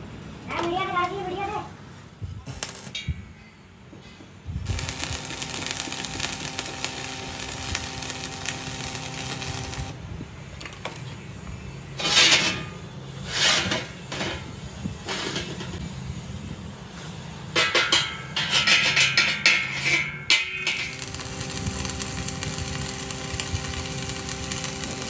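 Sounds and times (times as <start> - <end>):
welding arc crackling: 2.4 - 3.1, 4.6 - 10.0, 20.6 - 25.0
metal noise bursts: 4.6 - 10.0, 17.9 - 25.0
steady hum: 4.6 - 10.0.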